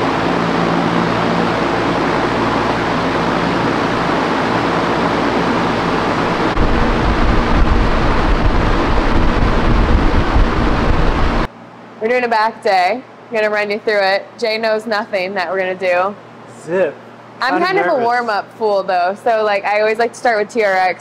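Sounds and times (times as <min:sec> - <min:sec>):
drum fan rushing air: 0:00.0 - 0:11.5
low motor hum: 0:00.0 - 0:11.5
uneven low rumble: 0:06.2 - 0:11.5.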